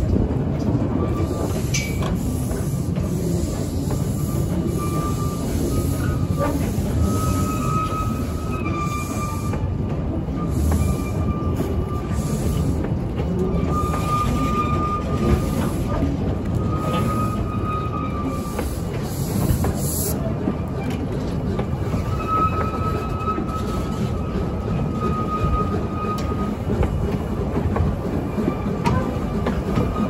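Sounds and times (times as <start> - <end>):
train coaches rumbling on rails: 0.0 - 30.0
thin wheel squeal: 4.2 - 9.6.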